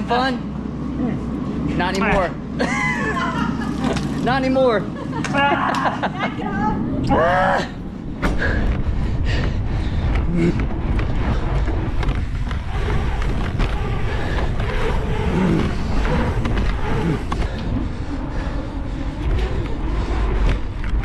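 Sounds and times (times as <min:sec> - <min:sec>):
bike tyres rolling on asphalt: 0:00.0 - 0:21.0
wind rushing over microphone: 0:00.0 - 0:21.0.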